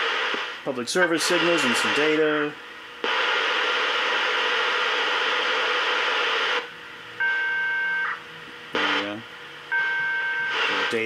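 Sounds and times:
radio hissing burst: 0:00.0 - 0:06.7, 0:08.8 - 0:09.2, 0:10.5 - 0:11.0.

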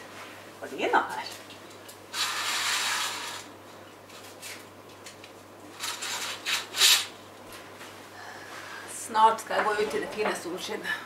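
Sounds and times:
curtain swishing: 0:02.1 - 0:03.5.

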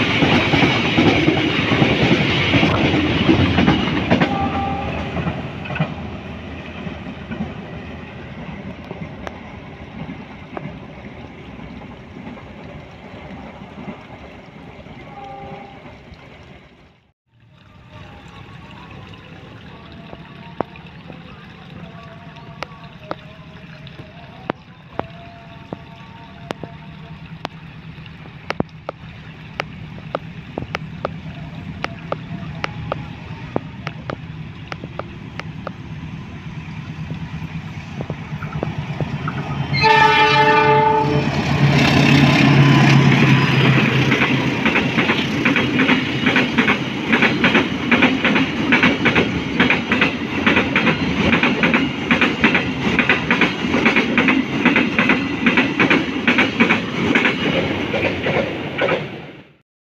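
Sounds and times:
train wheels clacking over rail joints: 0:00.0 - 0:06.2, 0:41.3 - 0:59.2
short train horn blast: 0:04.1 - 0:05.6, 0:15.0 - 0:16.0, 0:39.6 - 0:44.0
locomotive engine drone: 0:23.8 - 0:47.2.

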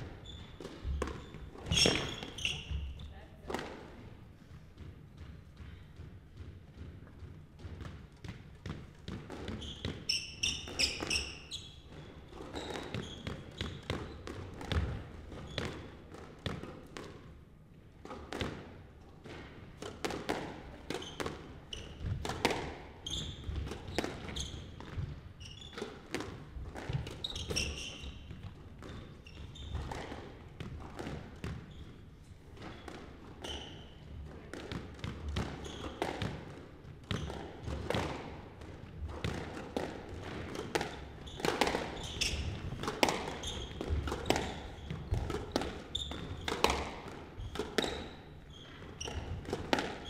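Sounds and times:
shoes squeaking on wooden floor: 0:00.1 - 0:03.2, 0:09.5 - 0:14.3, 0:22.9 - 0:25.8, 0:26.9 - 0:30.1, 0:31.6 - 0:34.1, 0:35.5 - 0:36.0, 0:41.0 - 0:49.4
squash ball cracking off rackets: 0:34.5 - 0:50.0.

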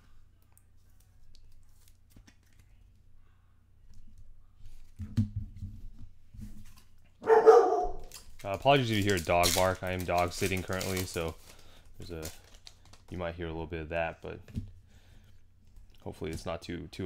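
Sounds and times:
dog barking loudly: 0:07.2 - 0:08.1
trading cards rustling: 0:07.4 - 0:13.2.

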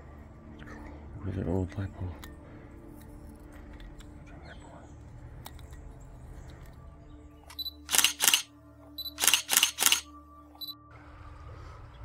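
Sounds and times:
camera shutter clicks: 0:07.5 - 0:08.5, 0:09.1 - 0:10.1.

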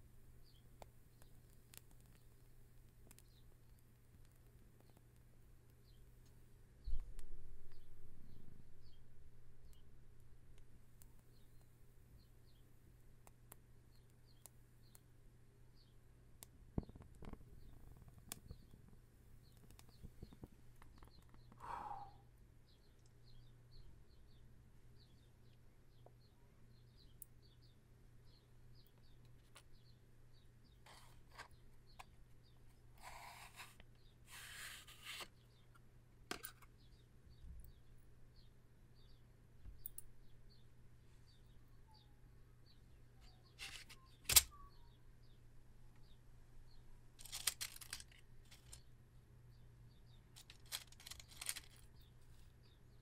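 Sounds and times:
faint bird chirps: 0:00.0 - 0:02.4, 0:06.8 - 0:10.0, 0:13.8 - 0:15.1, 0:16.8 - 0:35.8, 0:36.5 - 0:53.0
match burning with crackles: 0:00.5 - 0:06.4, 0:16.4 - 0:21.5, 0:30.8 - 0:35.4, 0:50.4 - 0:52.6
matchbox tray sliding out: 0:50.5 - 0:51.8.

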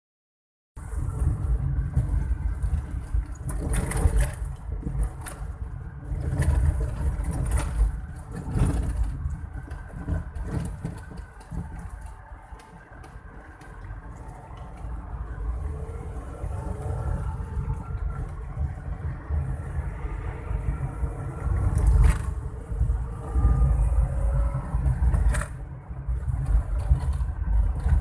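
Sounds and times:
car knocks and rattles: 0:06.1 - 0:13.7.

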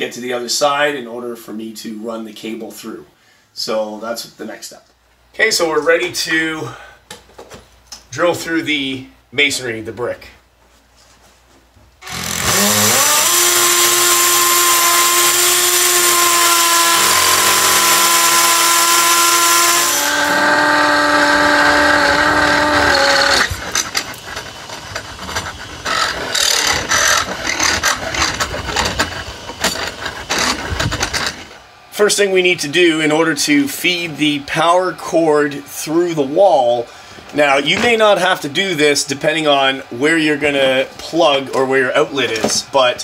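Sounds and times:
drill motor whine: 0:12.0 - 0:31.6
rattling and knocking: 0:22.0 - 0:31.5.

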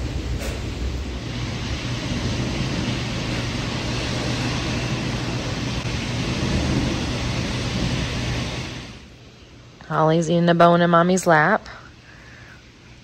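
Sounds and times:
low rumble: 0:00.0 - 0:10.6
heavy rain on concrete: 0:01.2 - 0:09.1.

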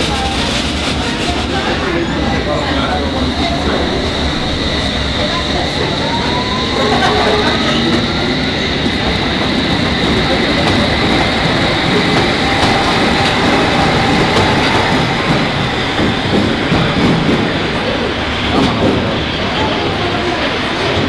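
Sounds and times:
train wheels rumbling on track: 0:00.0 - 0:21.0.

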